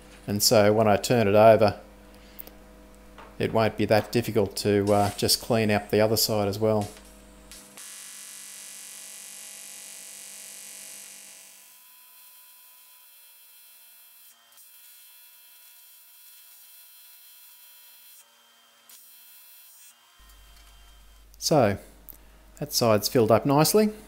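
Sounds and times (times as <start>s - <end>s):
welding arc buzzing: 4.0s - 18.3s, 18.9s - 21.4s.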